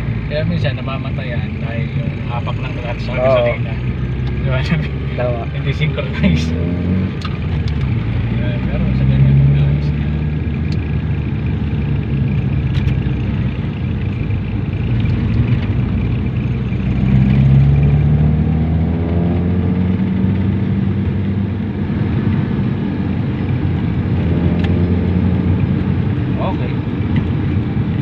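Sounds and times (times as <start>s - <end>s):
car engine running: 0.0s - 28.0s
road noise: 0.0s - 28.0s.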